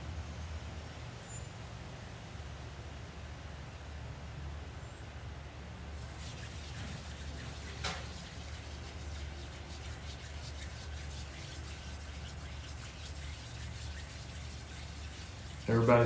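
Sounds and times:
steady low hum: 5.8s - 16.0s
hands rubbing together: 6.0s - 16.0s.

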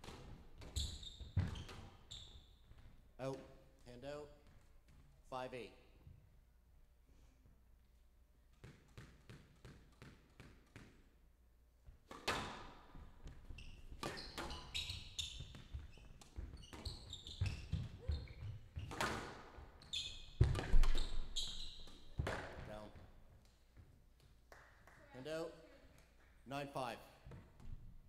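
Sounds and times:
ball bouncing on court floor: 0.0s - 2.9s, 8.6s - 11.0s, 12.0s - 24.3s
shoes squeaking on court floor: 0.0s - 3.0s, 12.2s - 23.1s.

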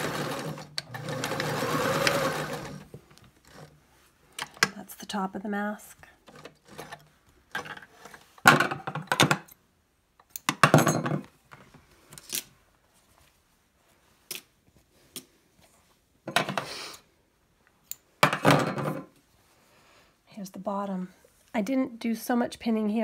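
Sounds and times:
fabric rustling: 11.7s - 16.1s.

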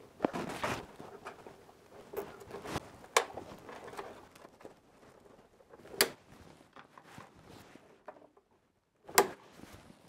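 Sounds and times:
hands rustling and ticking: 0.0s - 8.8s.

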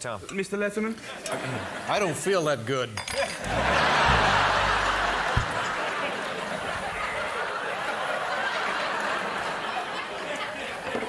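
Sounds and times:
audience laughing: 1.2s - 1.9s, 3.4s - 11.0s
low thump: 3.5s - 5.8s.

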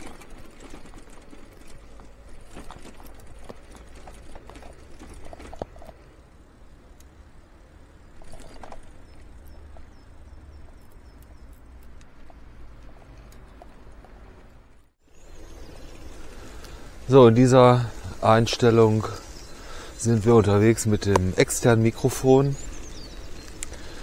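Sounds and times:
bicycle clattering over cobblestones: 0.0s - 5.6s
low rumble of tyres: 0.0s - 24.0s.

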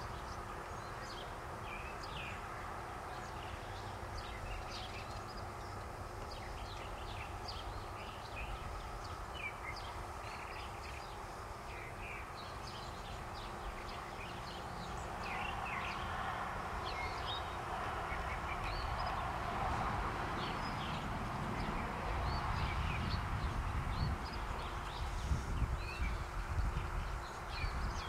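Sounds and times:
outdoor background noise: 0.0s - 28.0s
small birds chirping: 0.0s - 28.0s.

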